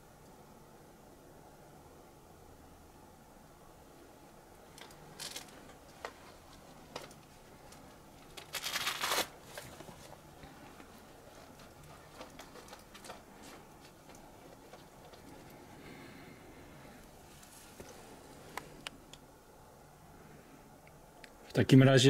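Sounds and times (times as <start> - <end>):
dry undergrowth rustling and crackling: 4.8 - 15.2.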